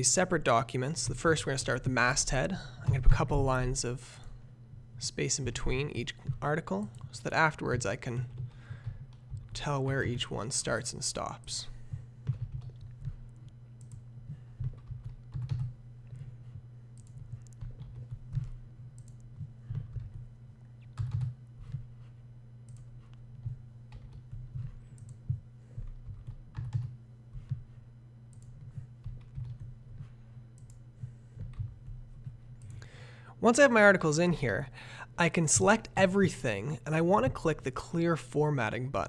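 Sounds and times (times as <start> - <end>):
computer keyboard typing: 6.2 - 10.3, 12.2 - 20.3, 20.9 - 21.8, 22.7 - 30.8, 31.4 - 32.8.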